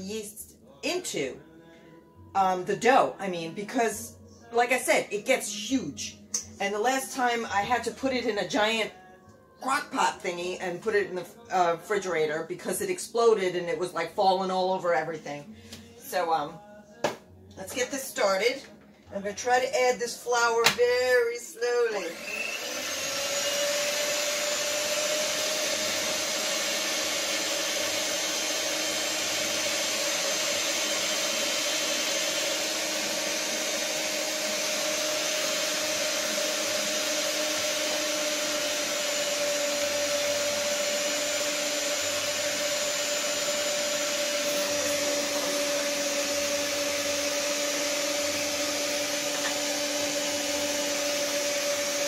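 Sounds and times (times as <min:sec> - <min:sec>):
stand mixer motor humming: 0:22.1 - 0:52.0.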